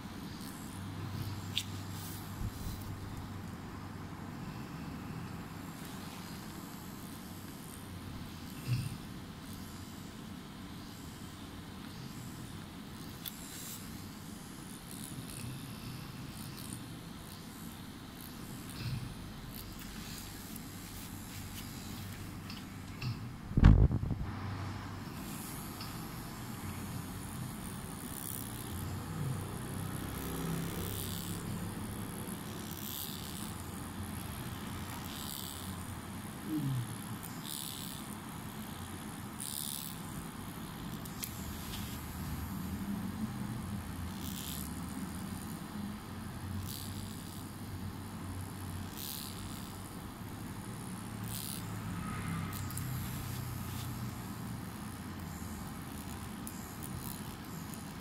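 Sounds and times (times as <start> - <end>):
tattoo machine humming: 0.0 - 58.0
short hissing rustles: 19.6 - 23.2, 41.1 - 42.3.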